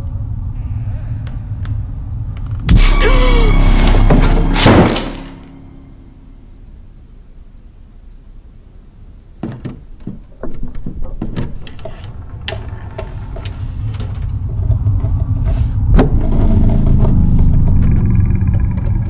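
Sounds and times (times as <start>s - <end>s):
low rumble: 0.0s - 7.8s, 12.1s - 19.0s
wooden chest knocking and rattling: 9.4s - 13.7s.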